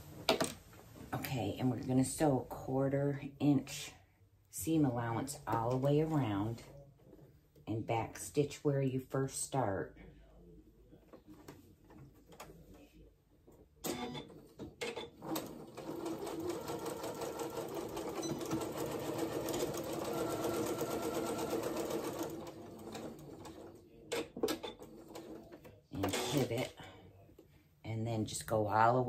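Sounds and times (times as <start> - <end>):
sewing machine stitching: 13.9 - 26.7.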